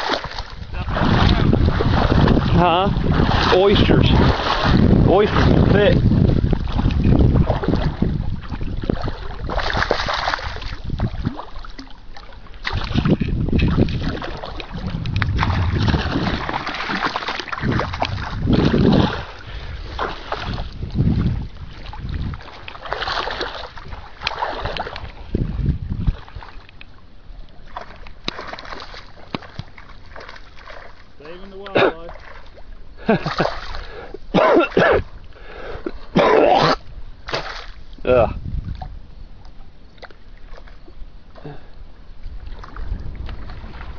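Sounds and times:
wind buffeting microphone: 0.0s - 27.6s, 36.8s - 39.7s, 40.8s - 43.9s
water sloshing from wading: 0.0s - 43.9s.

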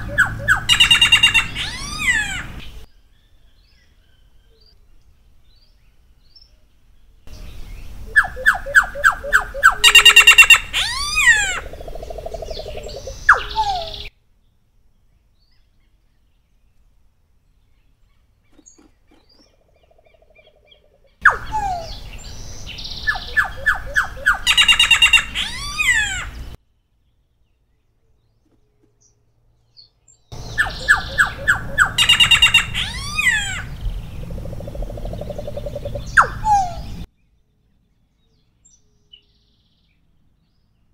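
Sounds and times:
bird singing trills and whistles: 0.0s - 4.8s, 7.3s - 14.1s, 20.3s - 26.6s, 29.8s - 37.1s.

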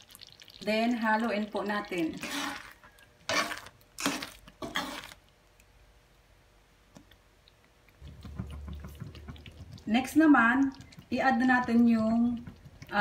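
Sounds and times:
spoon stirring thick sauce: 8.0s - 13.0s.

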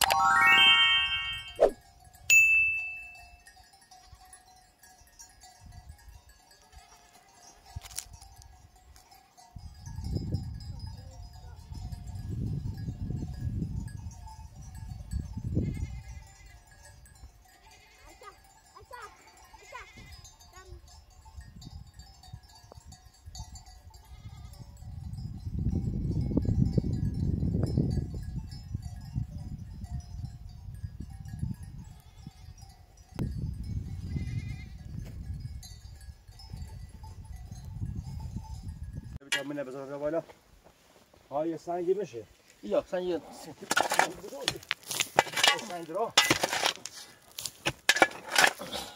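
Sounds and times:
sheep and goats bleating: 6.6s - 7.6s, 15.6s - 16.7s, 17.5s - 20.5s, 23.9s - 24.6s, 31.8s - 32.5s, 34.0s - 34.9s.

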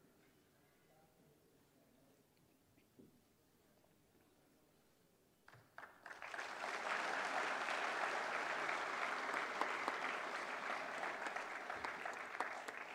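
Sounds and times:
audience applause: 5.8s - 12.9s.

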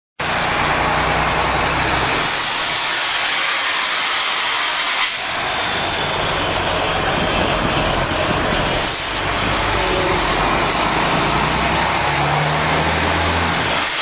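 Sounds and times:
rushing hiss of vehicle noise: 0.2s - 14.0s
low rumble: 5.2s - 13.7s.

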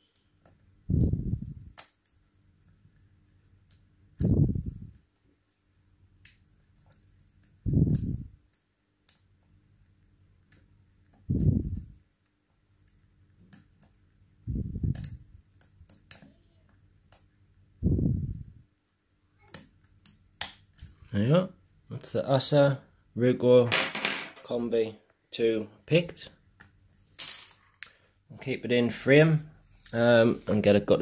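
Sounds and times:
lock pick metallic clicks: 3.7s - 5.0s
low puffs of air: 17.8s - 18.6s.

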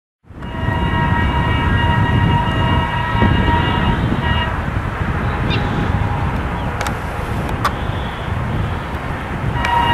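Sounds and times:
locomotive horn blast: 0.3s - 6.9s, 9.5s - 9.9s
diesel engine rumbling: 0.3s - 9.9s.

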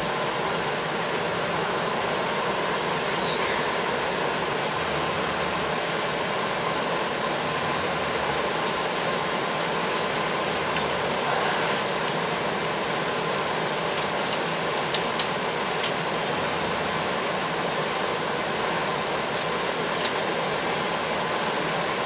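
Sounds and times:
fan rushing noise: 0.0s - 22.0s
faint clicks and rustles: 8.5s - 11.9s, 13.8s - 16.1s.

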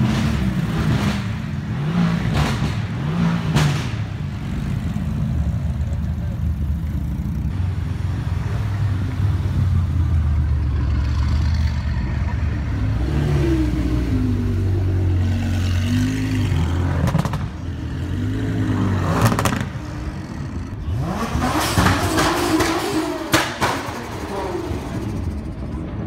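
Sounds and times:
car engine revving: 0.0s - 5.0s, 12.6s - 25.5s.

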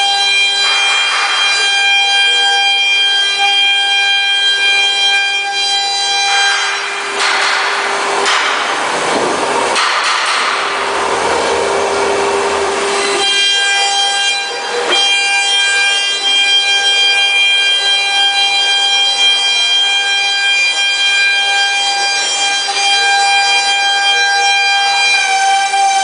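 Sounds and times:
router spindle whining: 10.7s - 26.0s.

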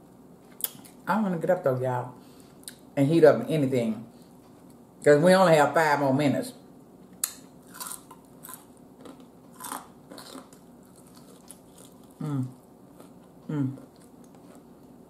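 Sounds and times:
person chewing crispy chicken: 7.6s - 15.0s
person humming mm: 12.2s - 12.6s, 13.5s - 13.9s.

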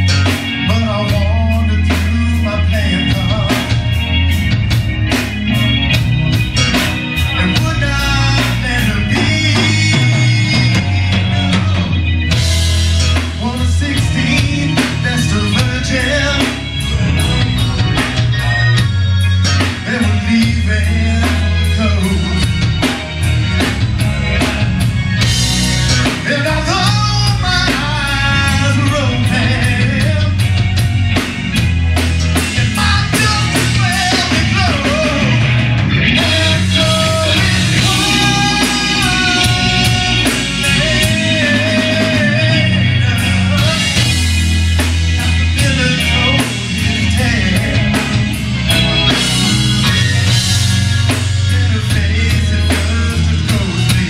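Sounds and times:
bass guitar: 0.0s - 54.0s
drum kit: 0.0s - 54.0s
electric guitar: 0.0s - 54.0s
keyboard: 0.0s - 54.0s
man singing into microphone: 0.6s - 3.8s, 7.4s - 11.9s, 13.3s - 17.5s, 19.6s - 22.6s, 26.2s - 30.4s, 32.6s - 35.5s, 36.2s - 44.4s, 45.5s - 48.3s, 51.3s - 54.0s.

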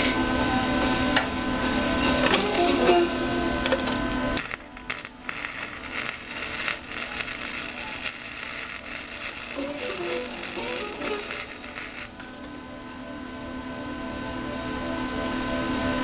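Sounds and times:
arc welding crackling sizzle: 2.1s - 12.6s.

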